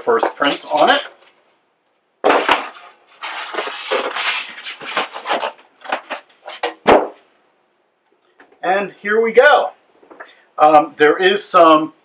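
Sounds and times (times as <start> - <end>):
scraping against styrofoam: 2.3 - 6.8
sharp knocks: 5.9 - 7.3.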